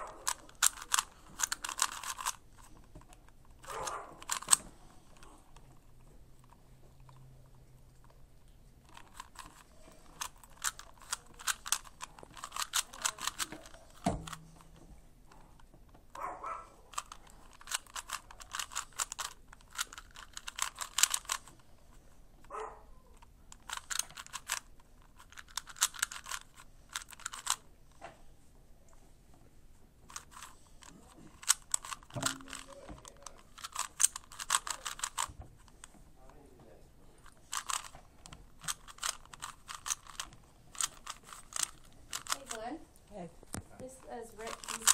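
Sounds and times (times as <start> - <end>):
plastic puzzle cube clicking: 0.0 - 7.2, 8.8 - 14.7, 16.9 - 21.6, 23.1 - 27.7, 30.1 - 35.9, 37.2 - 42.8, 44.4 - 44.9.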